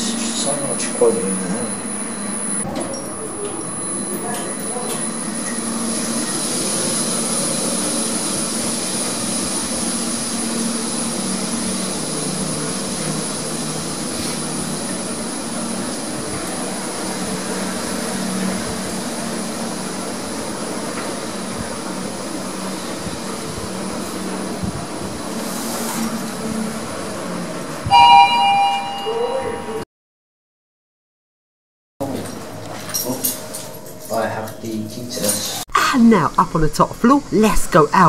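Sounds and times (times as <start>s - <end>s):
thin high whine: 0.0s - 27.0s
lift running noise: 0.0s - 29.8s.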